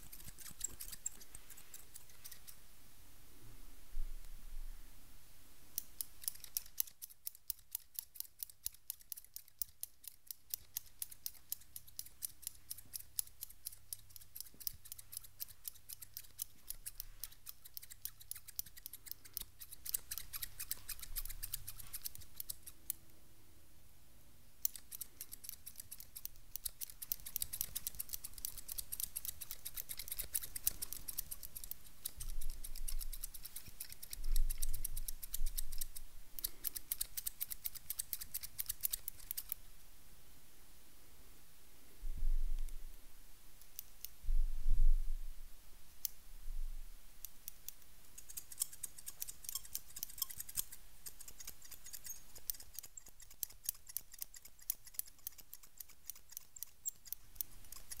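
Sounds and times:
scissors snipping: 0.0s - 2.6s, 5.8s - 23.0s, 24.6s - 39.6s, 47.2s - 58.0s.

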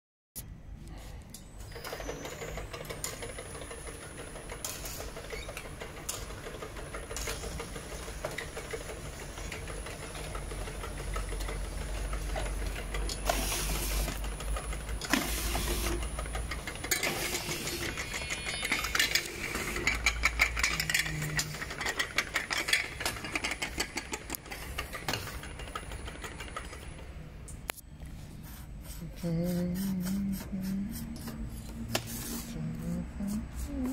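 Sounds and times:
thin high machine whine: 15.0s - 23.6s.

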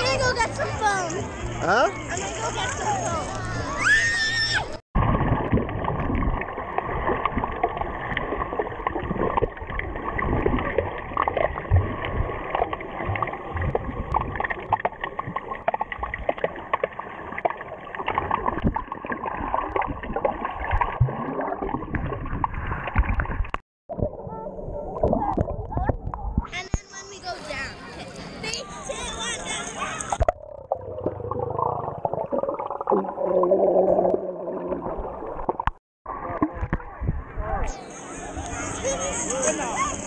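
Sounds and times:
water gurgling and sloshing: 4.6s - 40.0s
small knocks and splashes: 5.4s - 24.1s.

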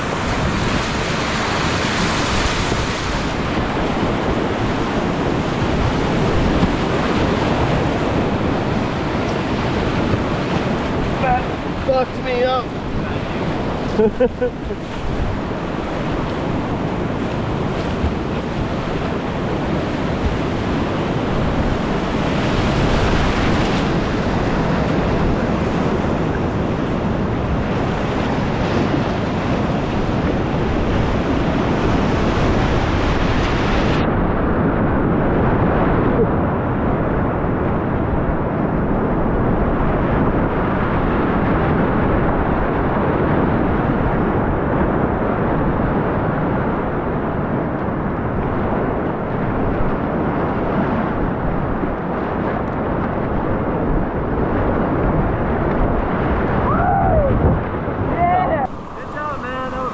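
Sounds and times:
whitewater rapids rushing: 0.0s - 34.0s, 49.2s - 59.9s
wind buffeting microphone: 0.0s - 59.9s.

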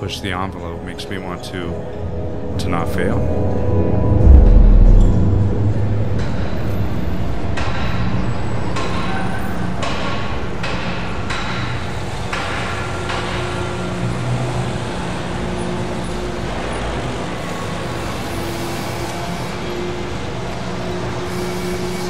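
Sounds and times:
rumble of engines and machinery: 3.4s - 9.1s.

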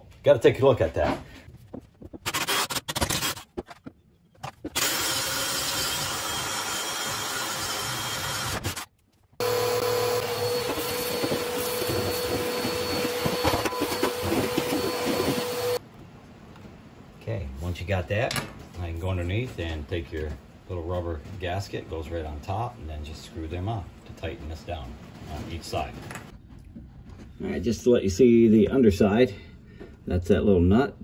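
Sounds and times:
drill boring through wood: 4.8s - 15.8s
vacuum cleaner humming: 9.4s - 15.8s.

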